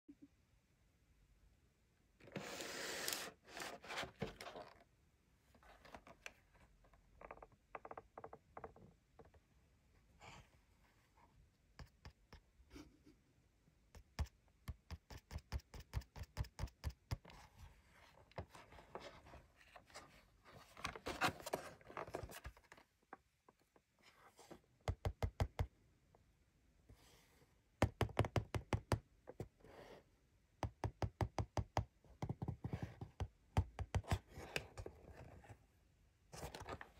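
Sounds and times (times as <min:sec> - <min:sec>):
fingers tapping plastic packaging: 0:27.8 - 0:29.1, 0:30.6 - 0:34.2.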